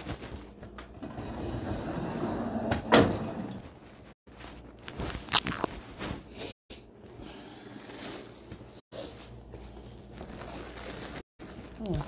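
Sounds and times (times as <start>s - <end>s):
clothing rustling: 0.0s - 0.6s, 3.6s - 6.6s.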